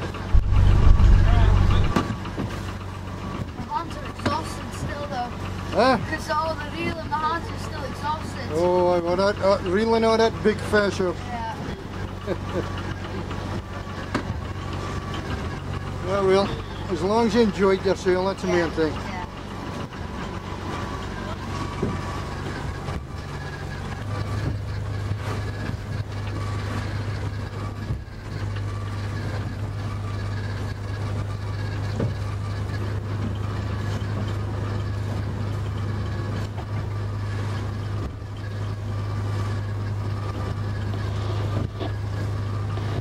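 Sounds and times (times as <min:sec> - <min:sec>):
boat engine humming: 0:00.0 - 0:43.0
waves splashing against hull: 0:00.0 - 0:43.0.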